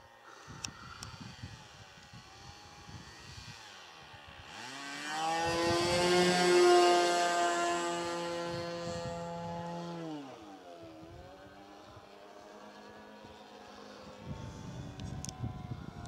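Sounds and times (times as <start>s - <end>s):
model airplane motor droning: 0.0s - 16.0s.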